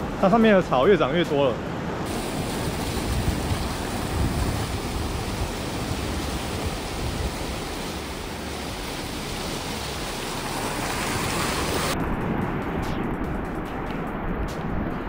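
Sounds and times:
surf breaking on rocky shore: 2.0 - 12.6.

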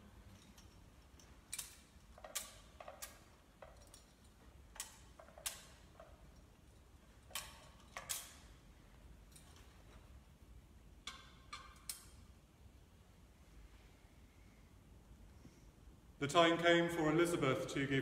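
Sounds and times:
censer chains clinking: 0.0 - 10.2.

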